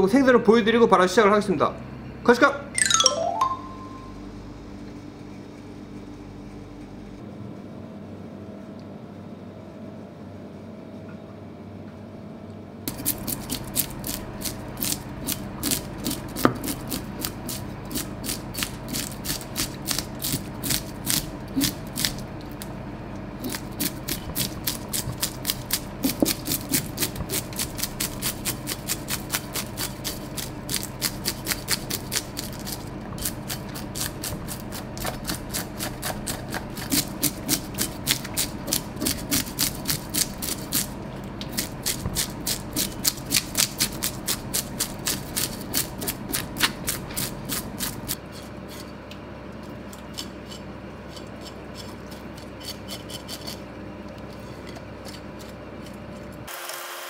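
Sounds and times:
fish scaler scraping scales: 50.1 - 53.6.

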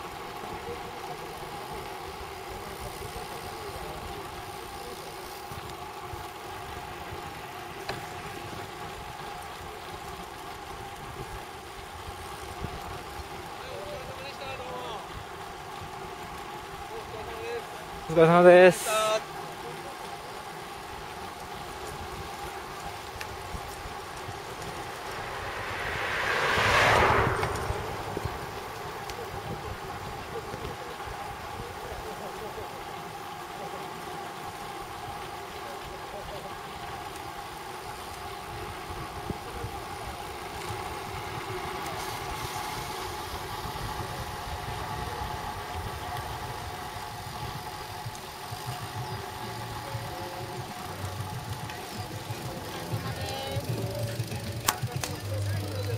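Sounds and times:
bicycle tyre rumble: 0.0 - 55.9
wind and road noise: 0.0 - 55.9
car passing close by: 22.9 - 30.6
wind noise on microphone: 23.3 - 30.6.

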